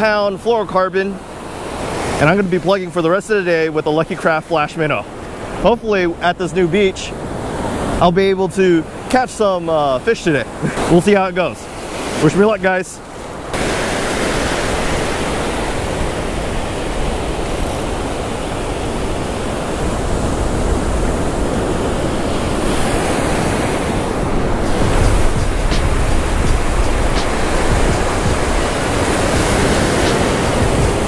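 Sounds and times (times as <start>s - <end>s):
ocean surf rushing: 0.0s - 31.0s
wind rumble on microphone: 15.4s - 31.0s.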